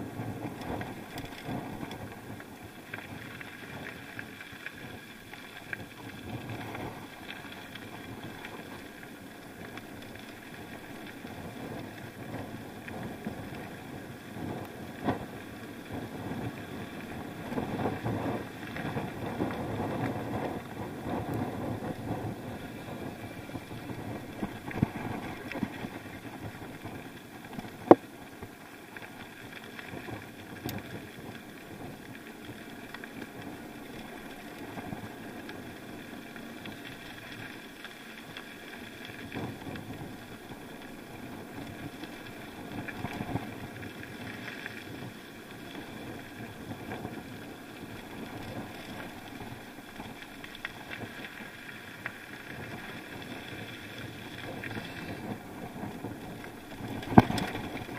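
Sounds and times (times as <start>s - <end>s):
tyres rumbling on gravel: 0.0s - 57.9s
wind on microphone: 11.2s - 28.1s, 52.4s - 57.9s.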